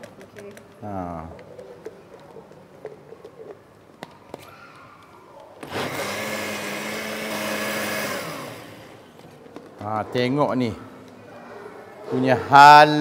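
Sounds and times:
blender motor running: 5.6s - 9.0s.

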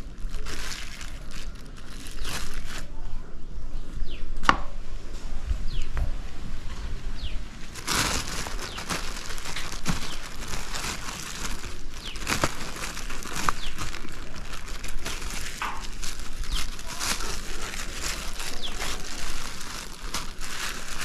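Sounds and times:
plastic bag crinkling: 0.0s - 2.9s, 7.6s - 21.0s.

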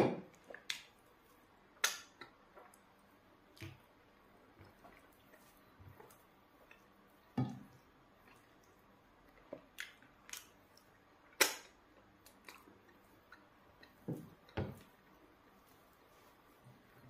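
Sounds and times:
wet mouth smacks and chewing: 8.2s - 14.0s.

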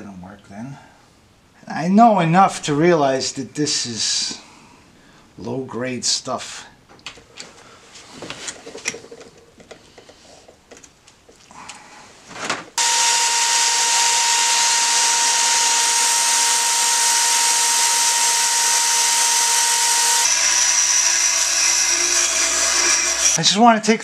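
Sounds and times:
bench grinder humming: 12.8s - 23.4s
cordless drill whining: 12.8s - 23.4s.

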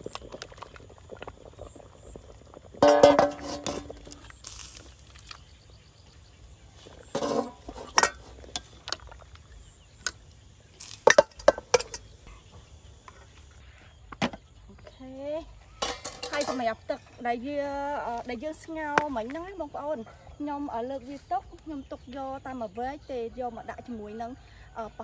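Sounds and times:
metal ladle clinking on pot: 2.8s - 4.0s, 7.1s - 9.0s, 11.0s - 12.1s, 15.8s - 16.6s.

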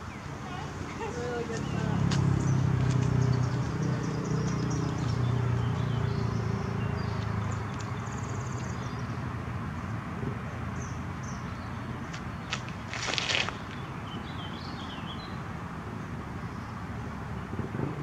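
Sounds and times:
small birds chirping: 0.0s - 9.3s, 10.5s - 15.5s
low engine hum: 0.1s - 18.0s.

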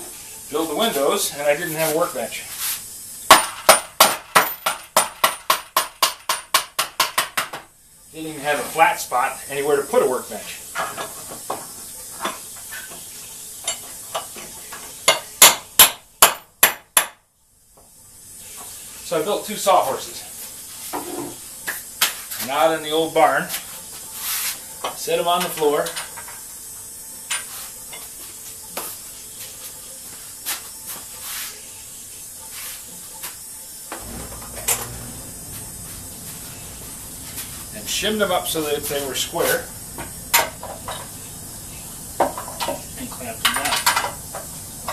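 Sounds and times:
steady hiss: 0.0s - 44.9s
low rumble: 34.0s - 37.8s
footsteps on concrete: 35.4s - 37.8s.

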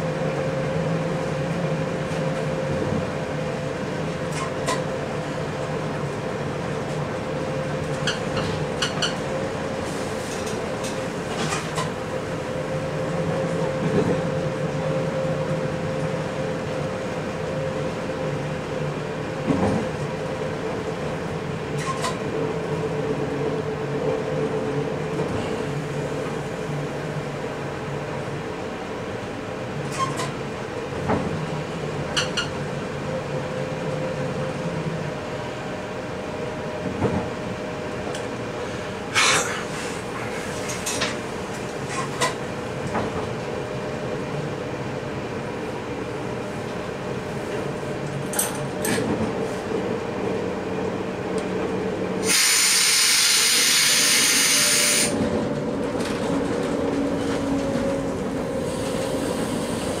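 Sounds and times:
train rumble and hum: 0.0s - 60.0s
loud hiss: 52.2s - 55.1s.

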